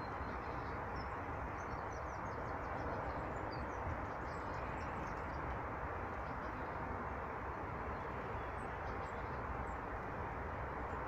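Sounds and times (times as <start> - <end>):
low outdoor background noise: 0.0 - 11.0.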